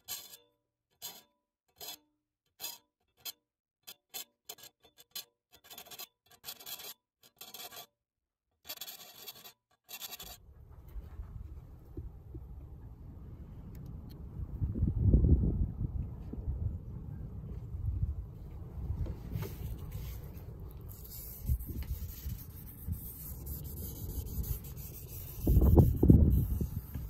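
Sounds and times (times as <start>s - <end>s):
file rasping on saw teeth: 0.0s - 8.0s, 8.6s - 10.4s, 20.9s - 27.0s
steady low rumble: 10.4s - 27.0s.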